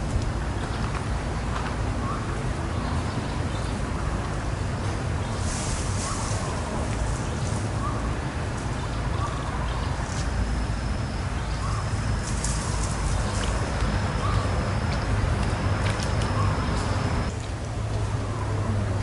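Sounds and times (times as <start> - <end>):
thin high whine: 9.7 - 17.4.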